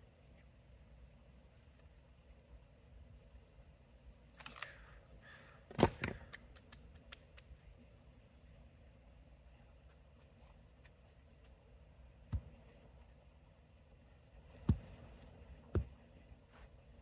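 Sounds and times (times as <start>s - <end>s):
axe chopping log: 12.3s - 12.6s, 14.6s - 14.9s, 15.7s - 16.0s.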